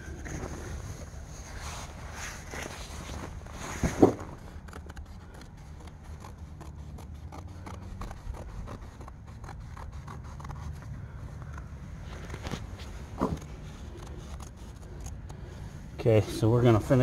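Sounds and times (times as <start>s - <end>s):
scissors cutting canvas: 4.0s - 15.7s.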